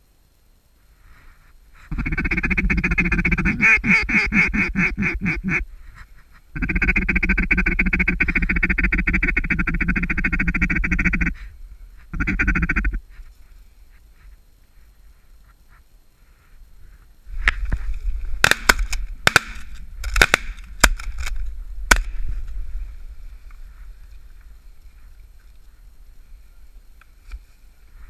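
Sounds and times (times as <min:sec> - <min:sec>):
duck call quacking blasts: 0:01.9 - 0:05.7, 0:06.5 - 0:11.5, 0:12.1 - 0:13.0.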